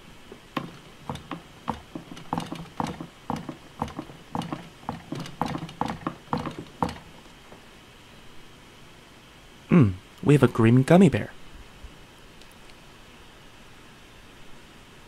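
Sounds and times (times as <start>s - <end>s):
taps and knocks on hollow plastic: 0.6s - 7.3s.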